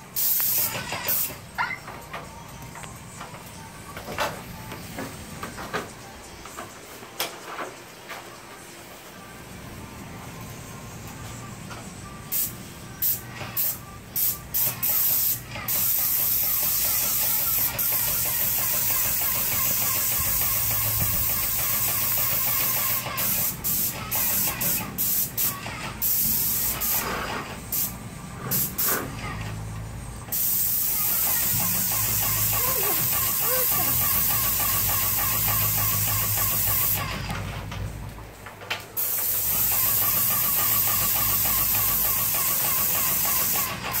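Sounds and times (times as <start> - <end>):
paint sprayer hissing: 0.0 - 1.4, 12.3 - 27.0, 27.7 - 29.4, 30.3 - 37.2, 39.0 - 44.0.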